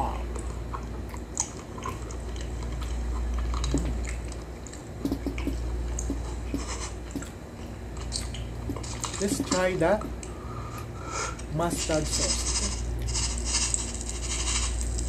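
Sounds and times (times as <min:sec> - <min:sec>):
steady low hum: 0:00.0 - 0:15.0
chewing and biting food: 0:00.3 - 0:10.3.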